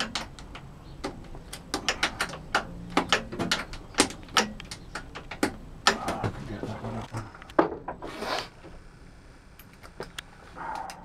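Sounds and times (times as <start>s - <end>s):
hand tool clicks and metal knocks: 0.0s - 6.3s.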